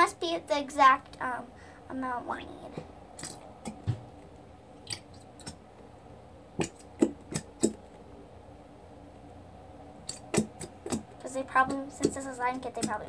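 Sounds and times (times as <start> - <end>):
wet glue squishes: 4.8 - 5.6, 6.6 - 7.9, 10.0 - 13.0.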